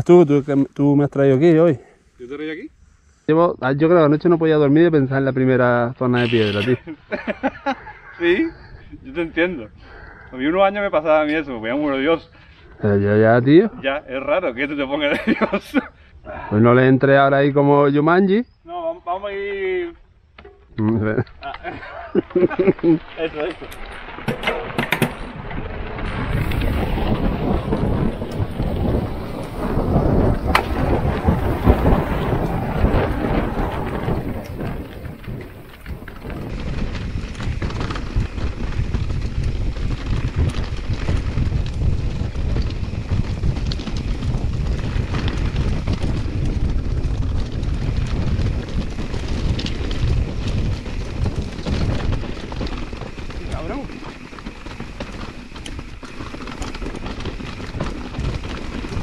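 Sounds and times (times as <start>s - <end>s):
wind rumbling on microphone: 19.2s - 59.0s
bike rattling over stones: 20.4s - 59.0s.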